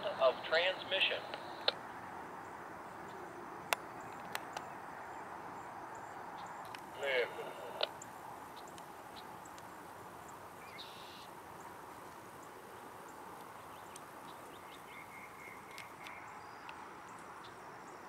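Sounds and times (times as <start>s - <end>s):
low background noise: 0.0s - 18.0s
short bird chirps: 10.6s - 11.3s.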